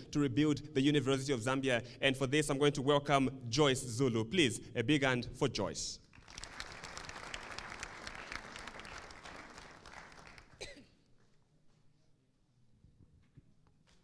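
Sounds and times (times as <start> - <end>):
audience applauding: 6.2 - 10.6.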